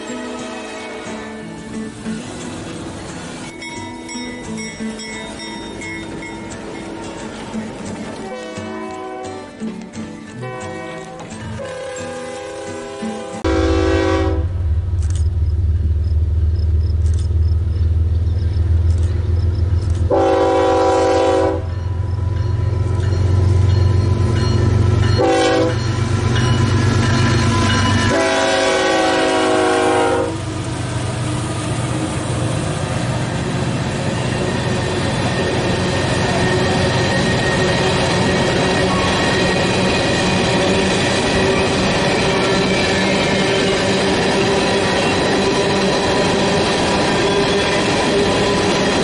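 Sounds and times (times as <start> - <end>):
train horn blasts: 8.2 - 9.6, 10.4 - 14.7, 20.1 - 21.8, 25.1 - 25.9, 28.0 - 30.5
locomotive engine rumble: 12.5 - 49.0.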